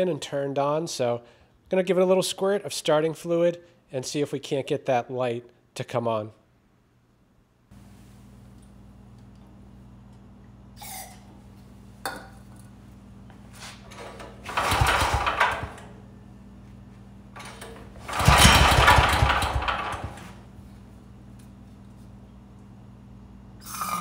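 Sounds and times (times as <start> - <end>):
recoil starter pull: 13.9 - 15.9, 17.4 - 20.4
small gasoline engine firing: 14.4 - 15.8, 17.4 - 20.4.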